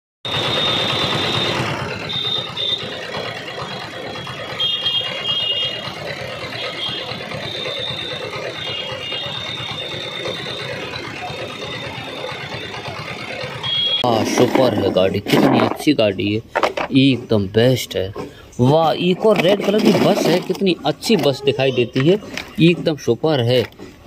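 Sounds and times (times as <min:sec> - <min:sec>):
toy vehicle rattling and whirring: 0:00.3 - 0:17.2, 0:18.2 - 0:24.0.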